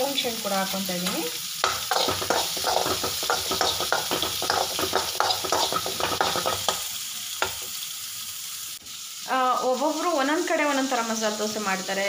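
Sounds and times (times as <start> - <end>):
onion and garlic sizzling in pan: 0.0 - 12.0
utensil scraping and clinking pan: 1.6 - 6.8.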